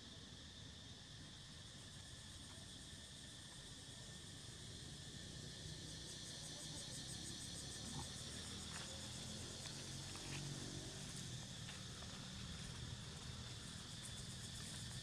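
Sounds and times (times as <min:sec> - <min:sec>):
insects chirping: 0:00.0 - 0:15.0.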